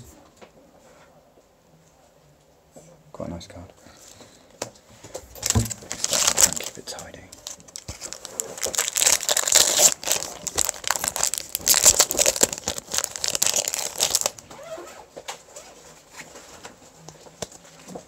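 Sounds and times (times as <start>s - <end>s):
foil wrapper crinkling: 5.3s - 14.4s.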